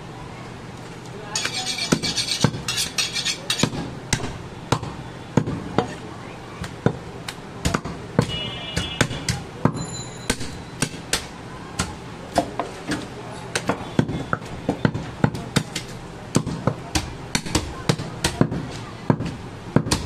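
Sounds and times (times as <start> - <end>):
knife striking wooden chopping block: 1.4 - 5.9.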